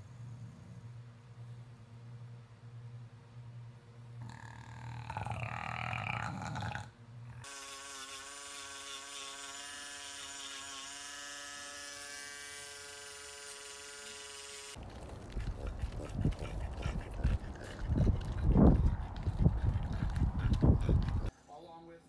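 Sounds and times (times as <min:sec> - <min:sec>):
electric nail grinder whine: 0:07.4 - 0:14.8.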